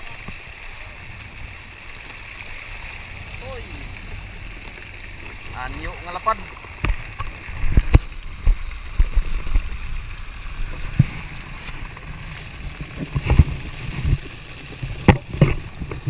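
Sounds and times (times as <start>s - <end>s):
low thumps and knocks: 6.8s - 9.8s.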